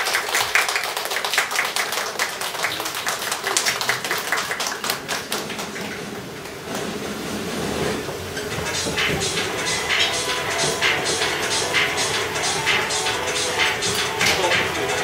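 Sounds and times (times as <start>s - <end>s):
audience clapping: 0.0s - 6.3s.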